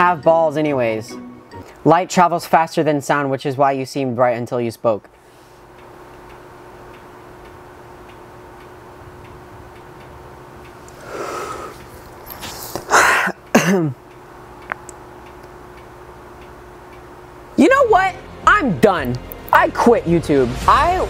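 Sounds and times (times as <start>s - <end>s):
room hum: 0.0s - 21.0s
man exhaling: 11.0s - 11.8s.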